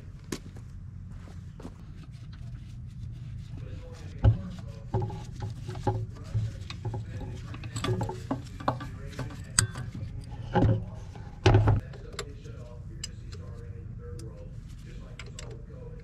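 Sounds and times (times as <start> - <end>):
clatter of parts and tools: 4.8 - 11.9
heavy thumps: 10.4 - 11.8.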